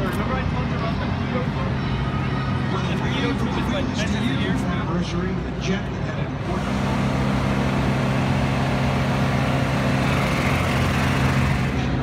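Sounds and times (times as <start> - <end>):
low engine drone: 6.2 - 12.0.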